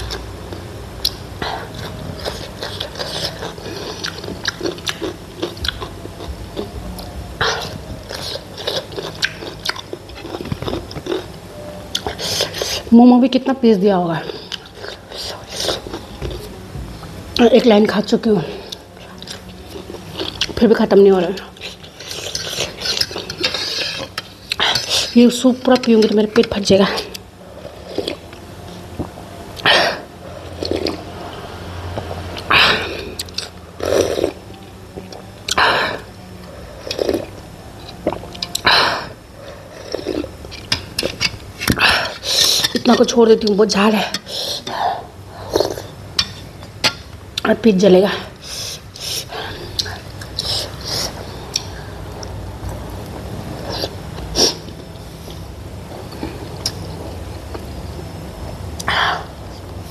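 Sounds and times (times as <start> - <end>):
chewing mouth sounds: 0.0 - 11.3.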